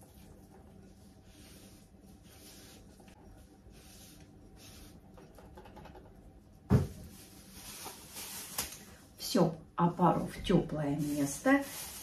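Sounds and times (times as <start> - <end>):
kitchen scraping and rustling: 10.4 - 12.0.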